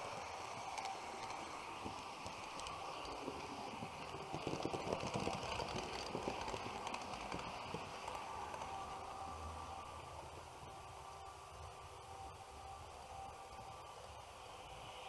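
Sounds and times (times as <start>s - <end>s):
model train wheels clattering: 0.0s - 8.9s.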